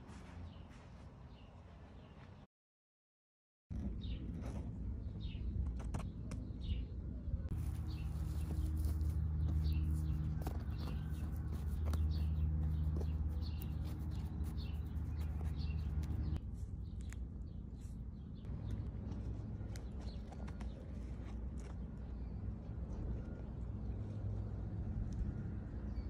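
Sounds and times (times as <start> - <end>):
small birds chirping: 3.9 - 22.6
dry moss crackling: 7.5 - 16.2.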